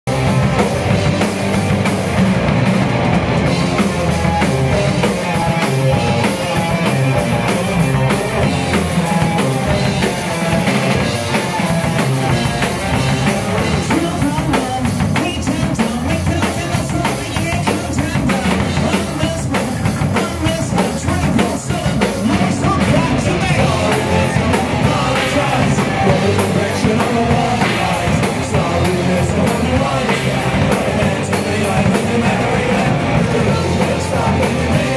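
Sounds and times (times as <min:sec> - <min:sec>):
rock band playing loudly: 0:00.0 - 0:34.9
person singing into a microphone: 0:13.6 - 0:34.9.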